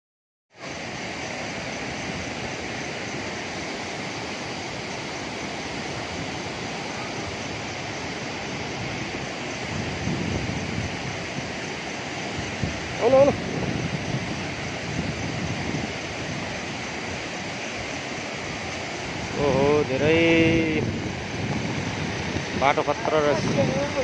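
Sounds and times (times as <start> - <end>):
fast-flowing river rushing: 0.6 - 24.0
wind rumble on microphone: 4.0 - 24.0.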